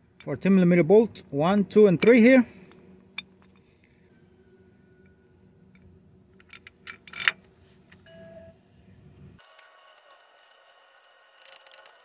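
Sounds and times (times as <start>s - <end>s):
faint steady hum: 0.0s - 12.0s
metal clinks and knocks: 9.6s - 12.0s.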